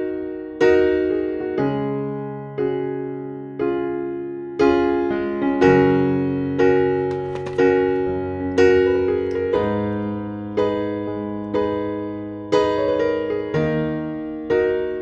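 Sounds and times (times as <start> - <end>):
electric piano slow chords: 0.0 - 15.0.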